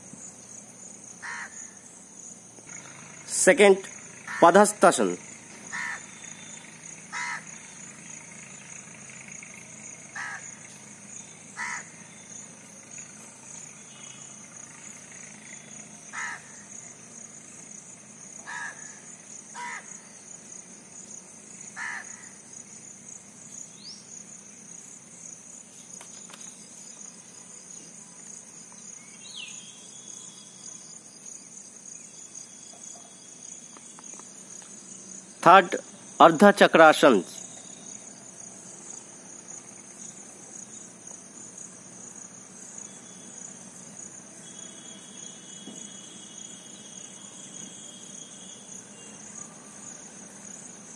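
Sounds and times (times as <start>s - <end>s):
high-pitched insect drone: 0.0s - 50.9s
bird's harsh calls: 1.2s - 1.8s, 3.9s - 4.7s, 5.4s - 8.0s, 10.1s - 10.6s, 11.5s - 12.4s, 16.1s - 16.6s, 18.4s - 20.1s, 21.8s - 22.4s.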